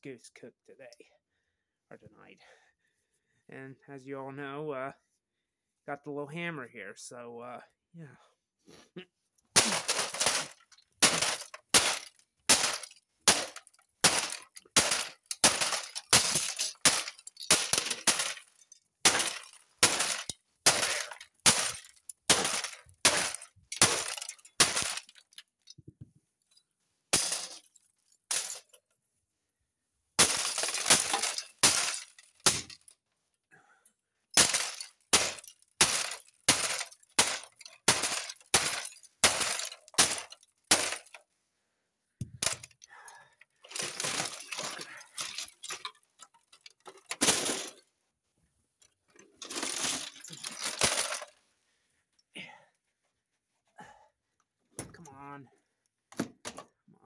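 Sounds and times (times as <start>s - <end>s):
hammer breaking plastic and metal: 9.6s - 25.4s, 27.1s - 28.8s, 30.2s - 32.9s, 34.3s - 41.2s, 42.2s - 42.8s, 43.7s - 47.8s, 49.4s - 51.3s.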